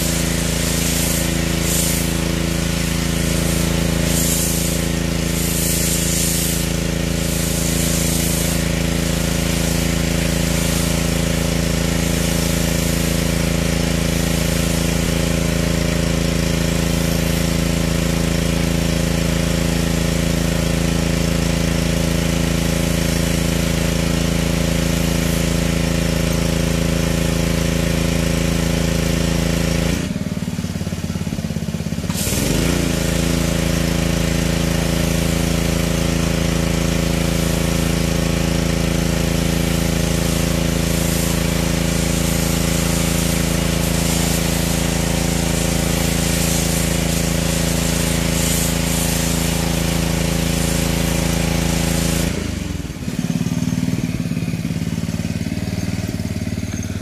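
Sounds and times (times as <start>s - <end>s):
spray hissing: 0.0s - 18.7s, 24.6s - 26.4s, 32.0s - 56.7s
pressure washer motor: 0.0s - 57.0s.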